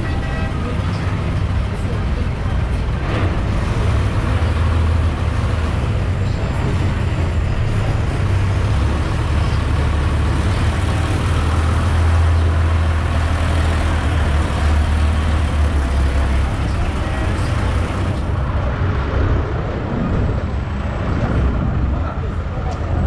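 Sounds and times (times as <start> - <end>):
boat engine droning: 0.0 - 23.0.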